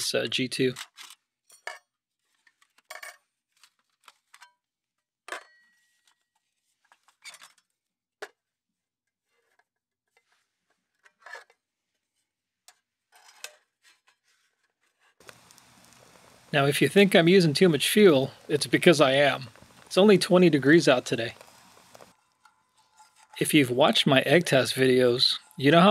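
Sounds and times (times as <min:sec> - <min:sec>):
metal clicks and scrapes: 0:21.3 - 0:23.4.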